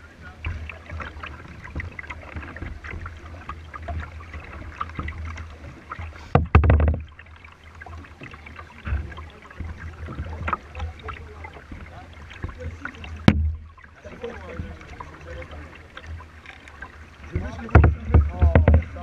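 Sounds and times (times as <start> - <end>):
water splashing against kayak hull: 0.0 - 19.0
loud splash and thump: 6.2 - 7.2, 8.8 - 15.1, 17.3 - 19.0.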